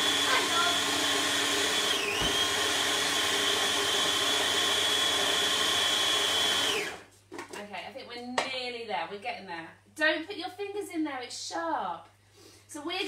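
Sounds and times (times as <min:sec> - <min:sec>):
electric blender whining: 0:00.0 - 0:07.1.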